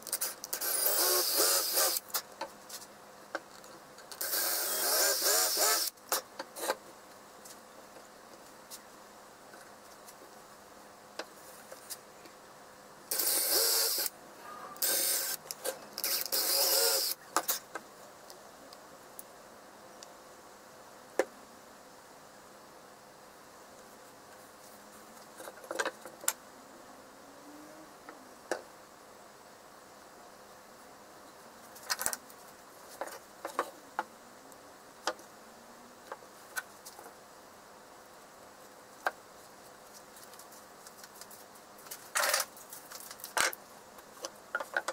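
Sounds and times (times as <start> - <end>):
cordless drill boring into wood: 0.5 - 2.0, 4.2 - 5.9, 13.1 - 14.1, 14.8 - 15.4, 16.0 - 17.2.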